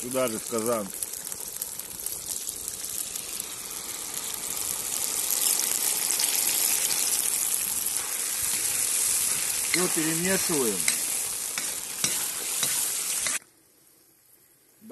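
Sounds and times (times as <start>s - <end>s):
food sizzling in hot pan: 0.0s - 13.4s.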